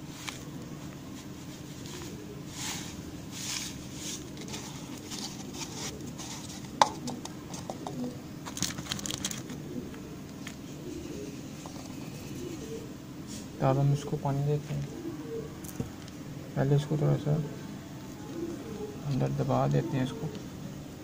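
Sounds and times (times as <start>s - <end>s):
sandy soil rustling: 0.0s - 6.8s.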